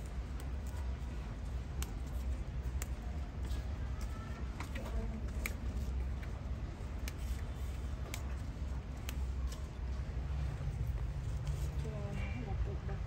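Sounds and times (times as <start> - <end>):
steady low hum: 0.0 - 13.0
leaves snapping off stems: 1.7 - 3.1, 7.0 - 7.4, 8.0 - 9.7.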